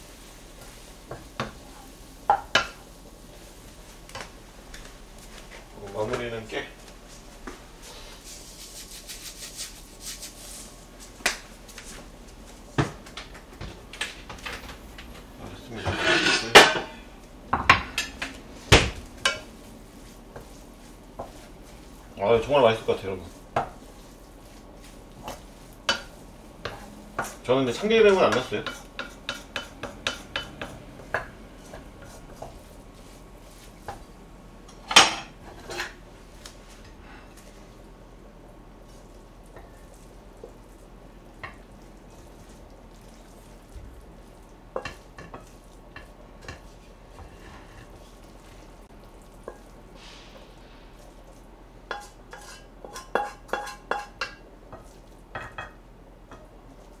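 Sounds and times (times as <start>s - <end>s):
kitchenware clattering: 15.7s - 19.5s, 34.7s - 36.0s, 51.9s - 56.5s.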